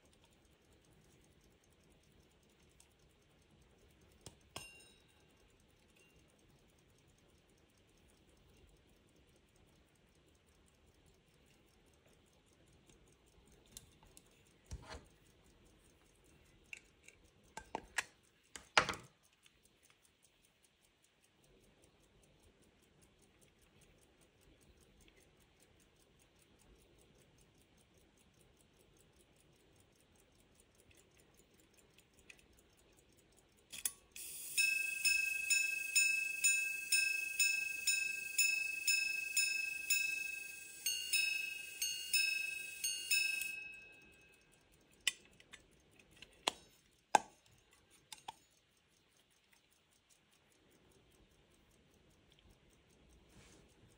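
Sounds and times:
watch ticking: 0:00.0 - 0:53.9
repeater chiming notes: 0:34.2 - 0:44.2.

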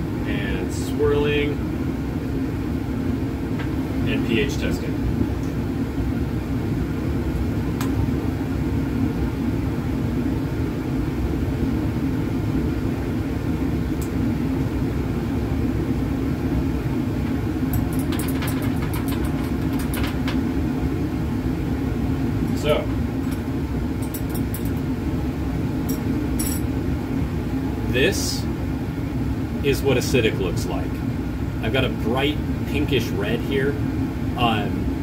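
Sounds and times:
fume hood fan rumble: 0:00.0 - 0:35.0
glassware clinking: 0:17.8 - 0:20.1.

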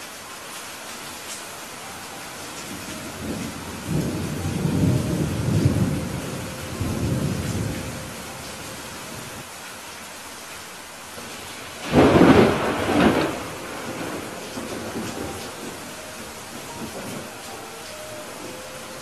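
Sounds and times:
steady rain: 0:00.0 - 0:19.0
thunder rumbling: 0:02.4 - 0:09.4, 0:11.2 - 0:19.0
loud thunder clap: 0:11.8 - 0:15.7.

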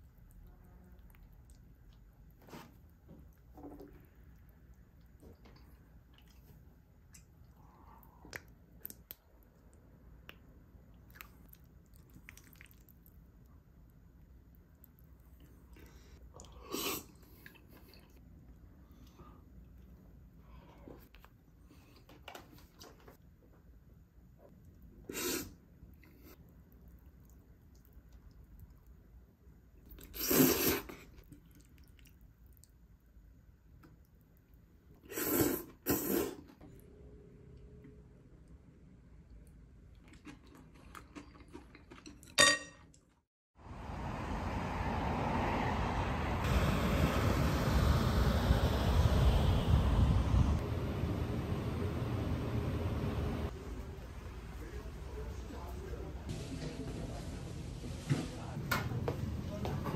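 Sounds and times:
faint chewing: 0:00.0 - 0:13.6, 0:24.4 - 0:29.1, 0:29.8 - 0:33.0, 0:39.3 - 0:43.2
wet mouth clicks: 0:08.2 - 0:09.3.

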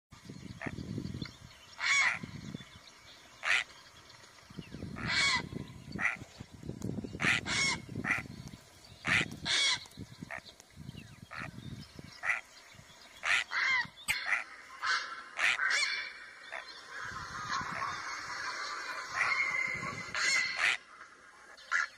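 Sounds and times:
heron calling: 0:01.8 - 0:02.5, 0:03.4 - 0:04.0, 0:04.8 - 0:06.3, 0:07.1 - 0:08.4, 0:09.0 - 0:20.9.

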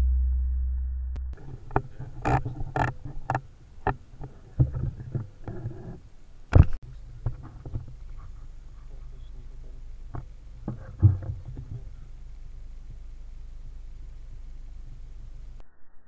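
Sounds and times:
low hum: 0:00.0 - 0:16.0
loud thump: 0:10.2 - 0:11.9.

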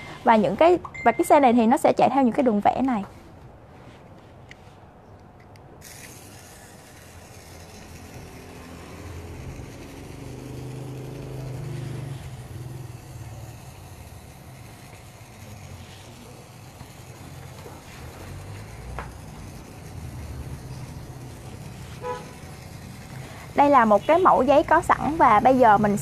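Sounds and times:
small electric motor humming: 0:05.8 - 0:26.0.

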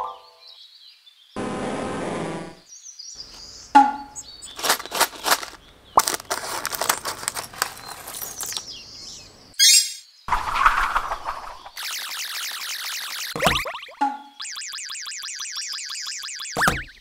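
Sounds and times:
plastic bag crinkling: 0:04.2 - 0:08.7
plastic pieces spilling: 0:04.4 - 0:08.6.

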